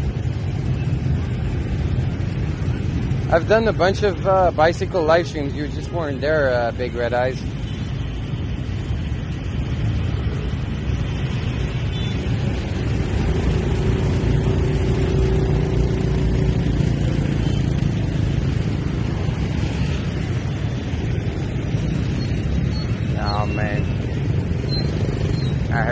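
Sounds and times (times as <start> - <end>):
motor scooter traffic rumble: 0.0 - 25.9.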